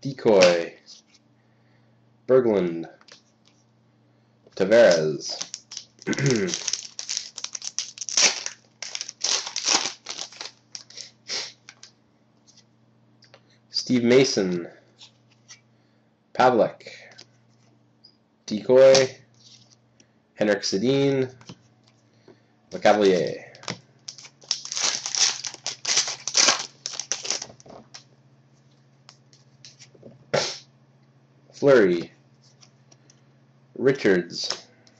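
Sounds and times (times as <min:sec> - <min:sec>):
foil wrapper crinkling: 0:04.9 - 0:11.9, 0:24.0 - 0:28.0.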